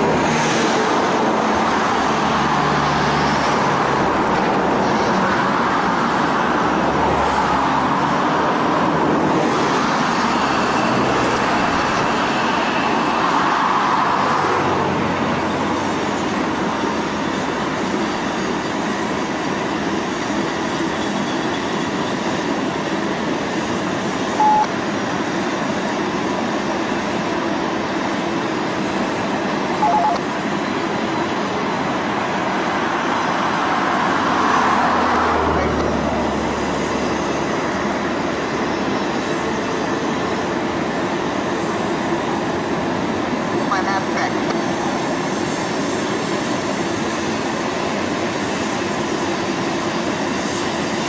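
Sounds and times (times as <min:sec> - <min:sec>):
train rumbling and clattering: 0:00.0 - 0:51.0
brief high tones: 0:24.4 - 0:24.7, 0:29.7 - 0:30.2.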